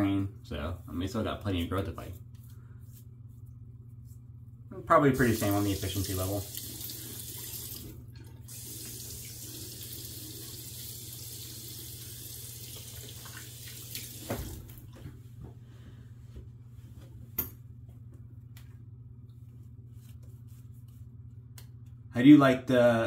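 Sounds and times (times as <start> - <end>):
water splashing into sink: 5.2 - 15.0.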